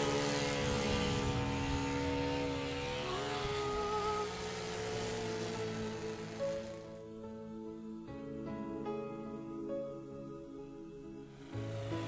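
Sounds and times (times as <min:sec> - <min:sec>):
model plane engine buzzing: 0:00.0 - 0:08.0, 0:11.0 - 0:12.0
background music: 0:00.0 - 0:12.0.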